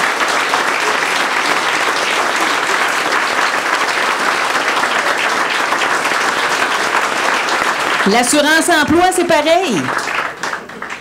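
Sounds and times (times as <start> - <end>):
audience applauding: 0.0 - 11.0.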